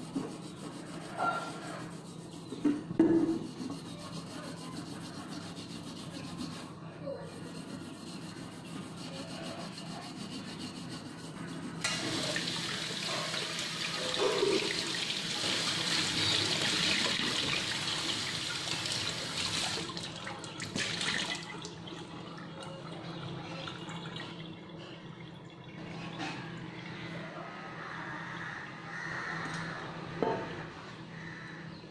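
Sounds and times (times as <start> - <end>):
steel wool scrubbing a pot: 0.0 - 19.8
tap water splashing into sink: 16.2 - 22.0.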